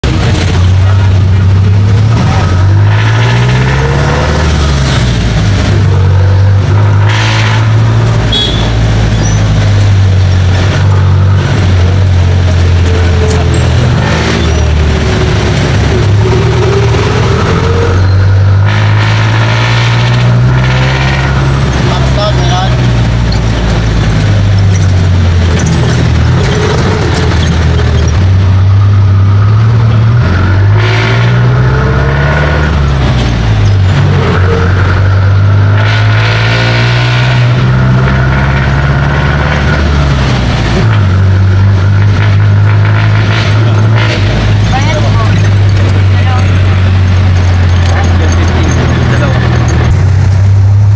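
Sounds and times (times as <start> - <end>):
diesel engine running: 0.0 - 50.9.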